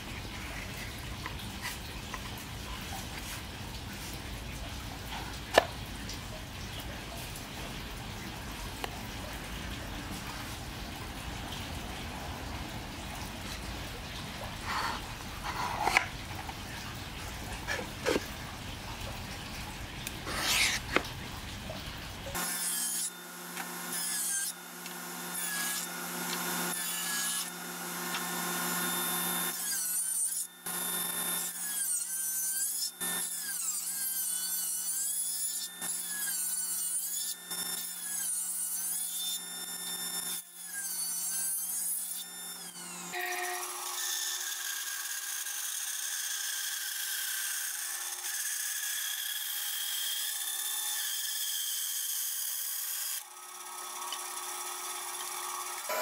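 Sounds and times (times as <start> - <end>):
power tool cutting wood: 14.7 - 16.1, 20.3 - 21.0, 22.3 - 56.0
steady power tool: 22.4 - 56.0.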